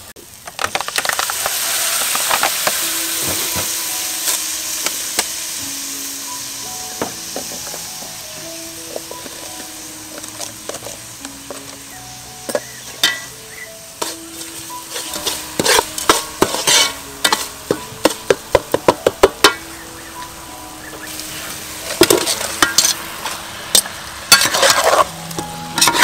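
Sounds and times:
paste frying in oil: 0.0 - 26.0
metal spatula scraping a pot: 12.5 - 13.3, 14.0 - 18.4, 21.1 - 25.1, 25.7 - 26.0.

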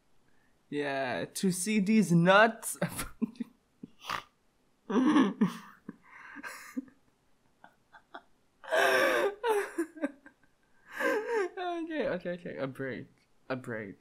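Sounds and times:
man's stifled laughter and gasps: 8.0 - 10.2.

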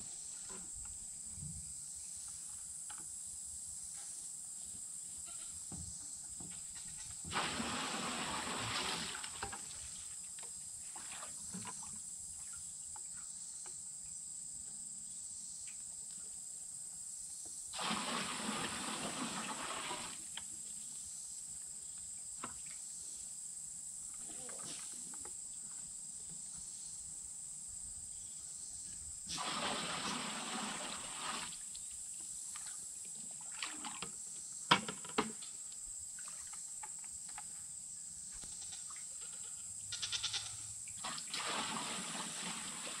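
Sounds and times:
water splashing into metal tank: 7.2 - 9.8, 17.7 - 20.2, 29.3 - 31.6, 41.0 - 43.0.

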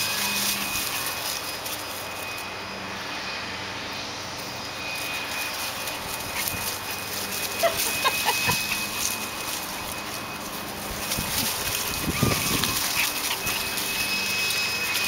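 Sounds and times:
steady background noise: 0.0 - 15.0
small dogs yipping: 5.0 - 15.0.

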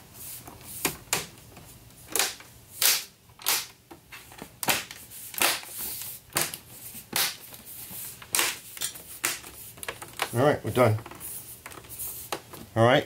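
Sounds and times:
plastic clips snapping into place: 2.1 - 3.8.

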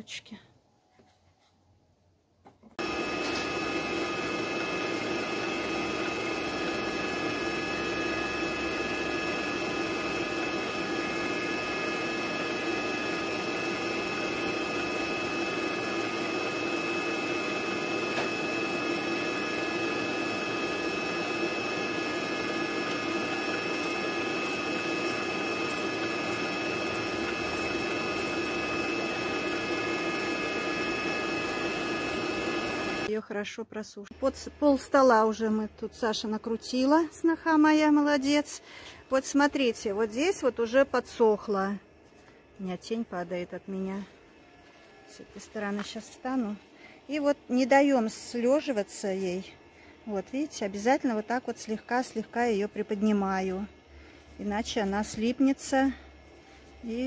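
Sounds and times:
stand mixer motor whining: 2.8 - 33.1.

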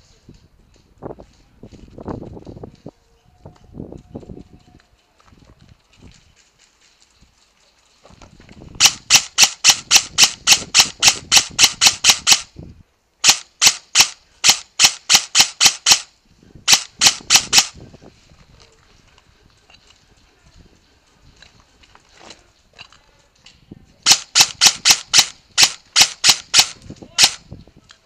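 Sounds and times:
airsoft gun rapid shots: 8.8 - 12.5, 13.2 - 16.1, 16.7 - 17.8, 24.0 - 27.4.

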